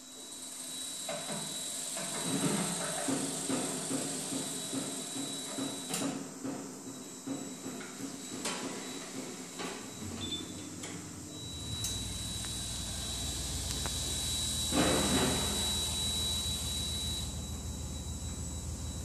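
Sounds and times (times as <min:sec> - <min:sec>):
thin high whine: 0:07.0 - 0:19.0
robot drive motors humming: 0:09.9 - 0:19.0.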